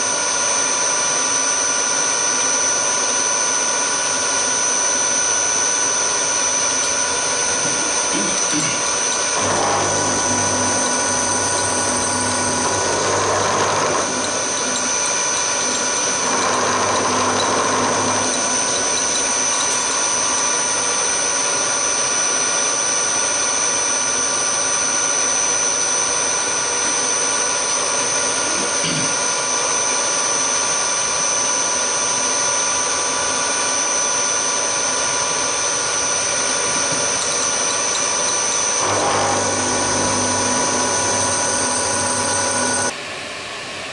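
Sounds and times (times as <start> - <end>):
milling machine whine: 0.0 - 43.1
end mill cutting aluminium: 6.2 - 22.5, 32.8 - 42.9.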